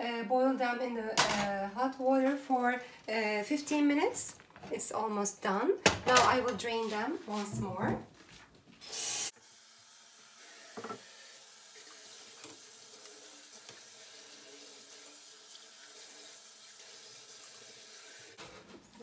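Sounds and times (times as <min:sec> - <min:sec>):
faucet running into metal sink: 0:10.0 - 0:18.4.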